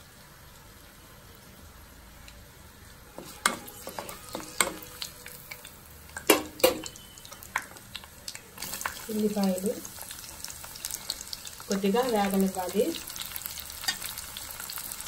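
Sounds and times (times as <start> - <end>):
spices sizzling in oil: 0.0 - 15.0
spatula scraping a pan: 3.1 - 5.1.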